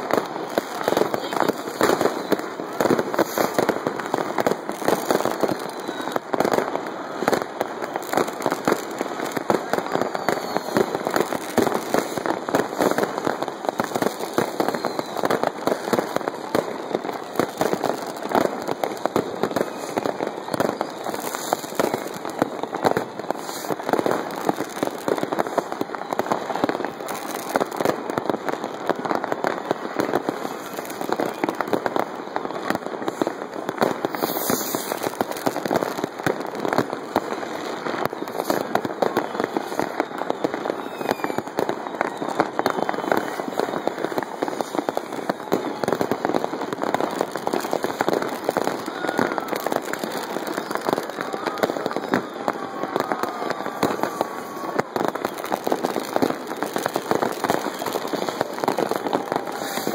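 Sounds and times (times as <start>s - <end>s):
fireworks crackling and banging: 0.0s - 59.9s.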